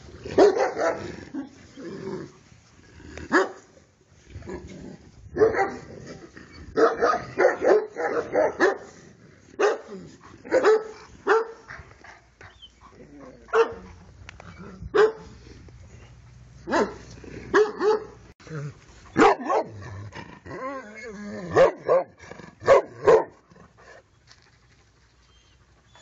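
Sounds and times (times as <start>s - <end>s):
dog barking: 0.3s - 1.1s, 3.3s - 3.6s, 5.4s - 5.9s, 6.8s - 8.9s, 9.6s - 9.9s, 10.5s - 11.7s, 13.5s - 13.9s, 14.9s - 15.3s, 16.6s - 18.2s, 19.2s - 19.8s, 21.5s - 23.4s.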